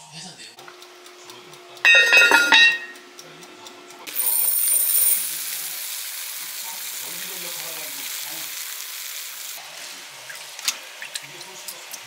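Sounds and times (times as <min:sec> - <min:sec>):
food sizzling in a pan: 0:04.1 - 0:12.0.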